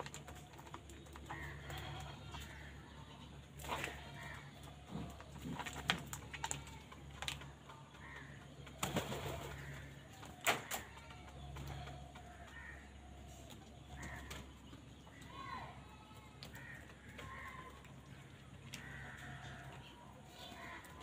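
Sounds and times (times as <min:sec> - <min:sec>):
faint bird calls: 0:07.4 - 0:21.0.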